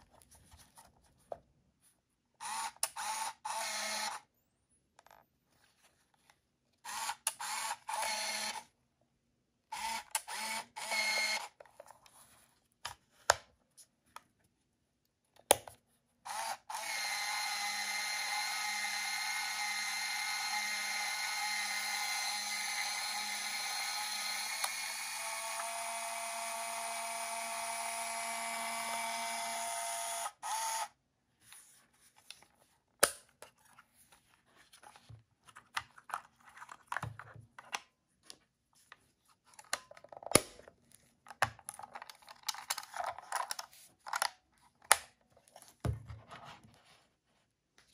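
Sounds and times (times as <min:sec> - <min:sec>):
camera film motor whirring: 0:02.4 - 0:04.2, 0:06.9 - 0:08.6, 0:09.8 - 0:11.5, 0:16.3 - 0:30.9.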